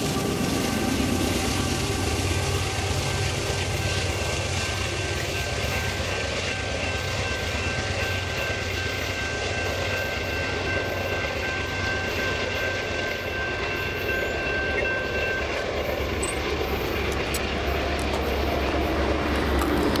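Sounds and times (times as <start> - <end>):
crossing warning bell ringing: 0.3 - 20.0.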